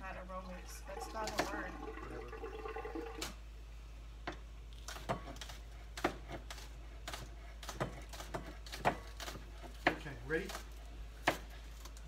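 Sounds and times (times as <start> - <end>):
knife chopping on plastic board: 4.9 - 11.5.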